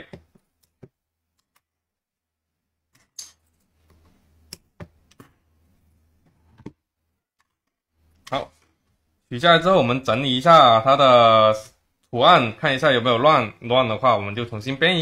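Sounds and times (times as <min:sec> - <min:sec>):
faint clicks and taps on table: 0:02.9 - 0:05.4.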